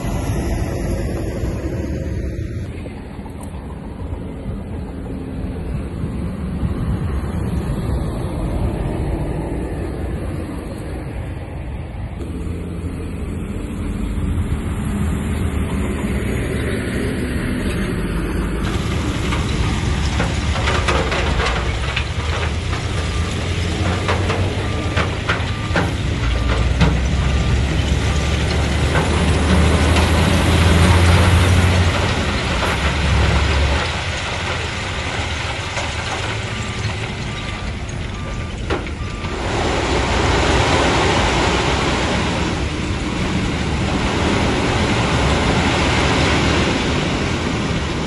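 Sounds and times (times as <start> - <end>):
bulldozer diesel engine under load: 0.0 - 48.0.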